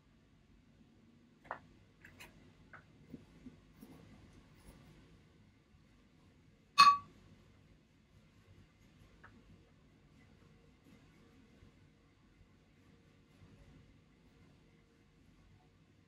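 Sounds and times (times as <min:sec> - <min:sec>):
sharp loud click with ring: 0:06.8 - 0:07.0.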